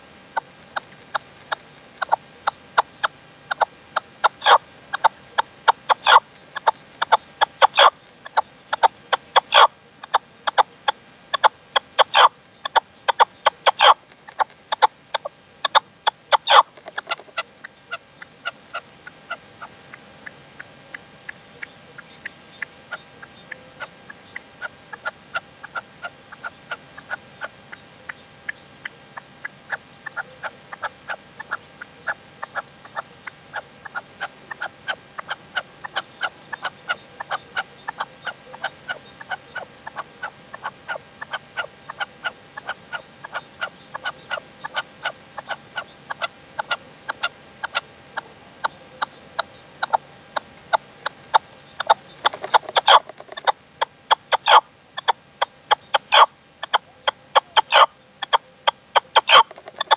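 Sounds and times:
partridge clucking calls: 0.0s - 59.9s.

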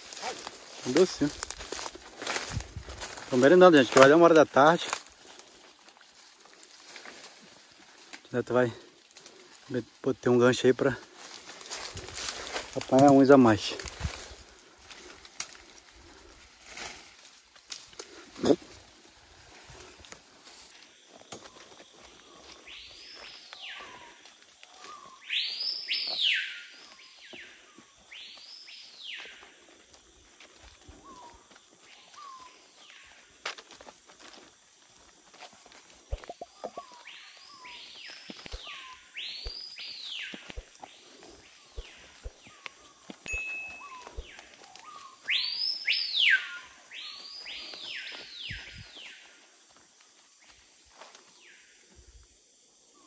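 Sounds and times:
footsteps on leaf litter: 0.0s - 51.6s
bird whistling calls: 24.7s - 27.1s, 41.6s - 49.1s.

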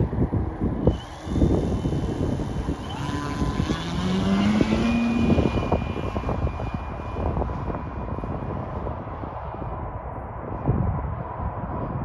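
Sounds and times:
wind rumbling on microphone: 0.0s - 12.0s
model plane motor whining: 0.7s - 8.9s.

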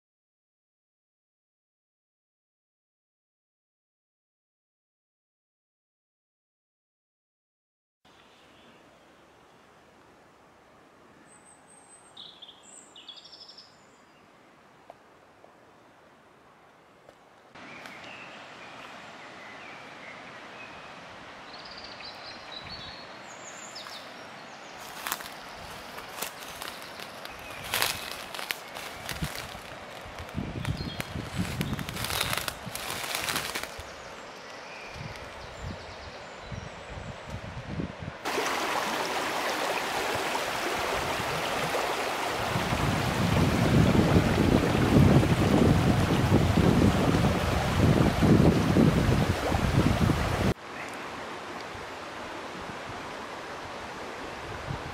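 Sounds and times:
birds chirping: 21.6s - 37.0s
river rushing over stones: 23.8s - 34.5s, 38.2s - 54.9s
wind buffeting microphone: 27.5s - 33.7s, 34.9s - 38.2s, 40.1s - 50.6s.

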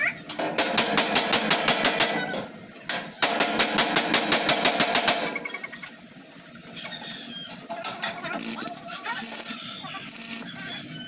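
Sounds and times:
power tool chattering on sheet metal: 0.3s - 5.4s.

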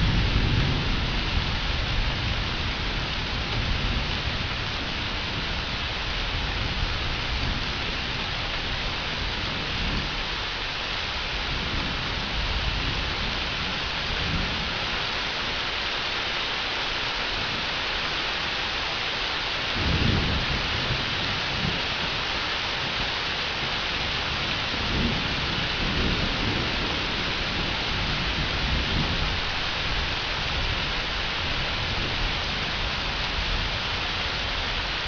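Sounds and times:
thunder rumbling: 0.0s - 10.3s, 19.7s - 34.9s
heavy rain hissing: 0.0s - 35.0s.

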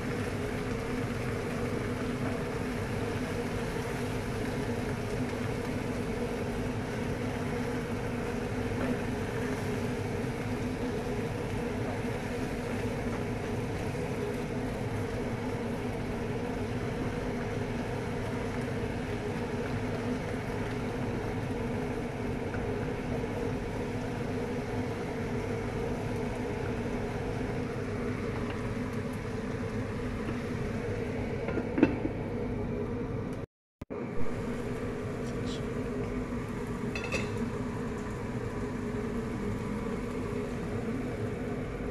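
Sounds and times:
food frying in a pan: 0.0s - 33.3s, 34.2s - 41.9s
glass lid clunk on pan: 37.0s - 37.4s.

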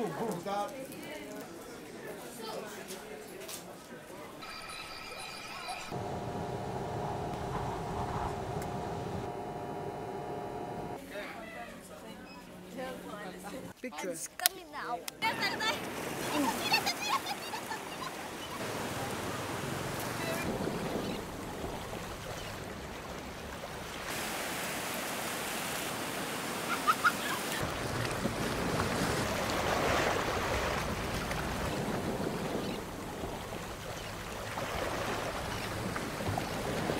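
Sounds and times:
ocean surf breaking: 5.8s - 11.0s, 15.2s - 36.9s.

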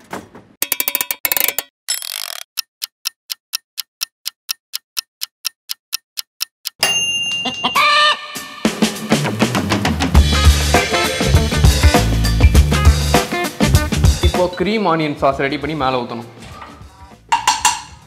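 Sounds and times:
timer ringing: 0.6s - 2.7s, 6.7s - 8.1s
rotary knobs clicking: 0.6s - 6.8s
oven timer ticking: 2.0s - 6.9s.

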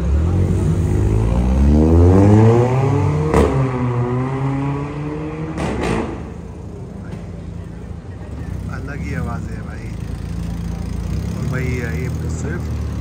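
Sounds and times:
car engine revving: 0.0s - 6.8s.

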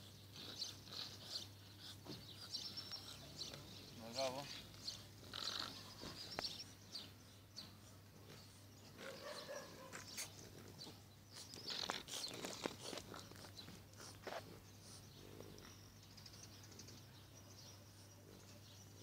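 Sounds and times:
dog panting: 0.3s - 4.0s.

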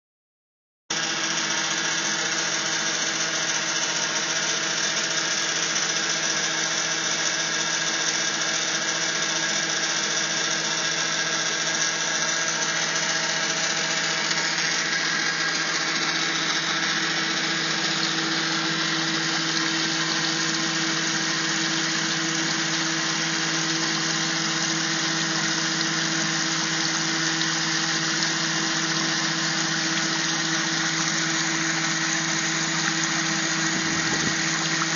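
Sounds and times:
electric pump humming: 0.9s - 34.9s
water splashing: 24.1s - 34.9s.

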